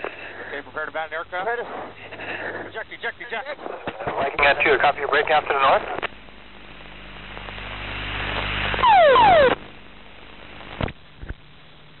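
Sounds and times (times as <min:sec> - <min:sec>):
burst with falling tones: 0:08.8 - 0:09.6.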